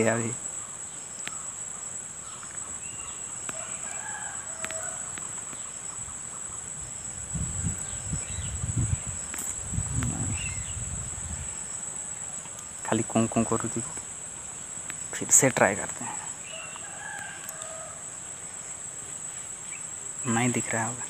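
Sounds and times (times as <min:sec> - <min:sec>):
bird calls: 0:00.0 - 0:21.0
insect drone: 0:00.0 - 0:21.0
low rumbling noise: 0:06.0 - 0:14.0.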